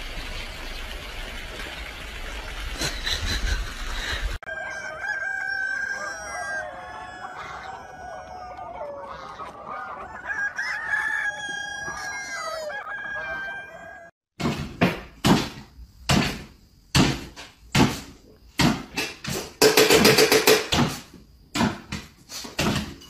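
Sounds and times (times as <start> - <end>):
chickens clucking and calling: 3.0 - 14.1.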